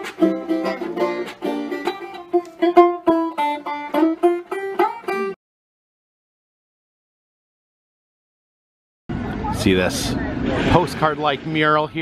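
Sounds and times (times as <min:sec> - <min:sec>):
upbeat plucked string music: 0:00.0 - 0:05.4.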